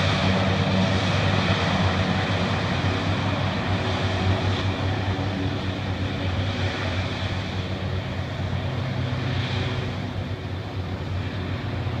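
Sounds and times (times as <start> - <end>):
hovercraft engines droning: 0.0 - 12.0.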